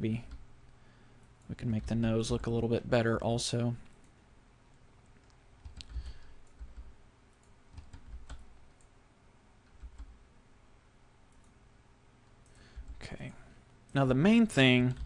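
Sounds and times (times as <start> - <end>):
computer keyboard and mouse clicks: 5.2 - 8.9.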